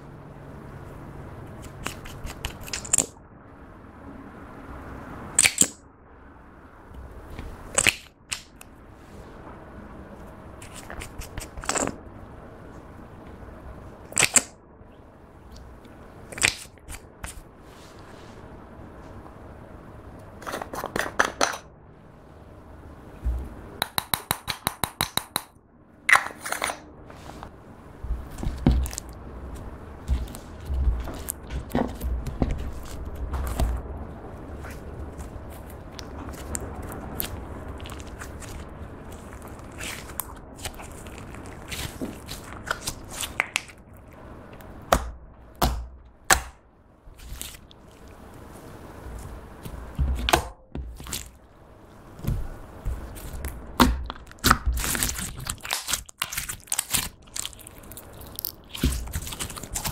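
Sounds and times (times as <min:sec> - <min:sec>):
taps on powder jar: 0:23.8 - 0:25.5
slime popping: 0:53.2 - 0:59.9.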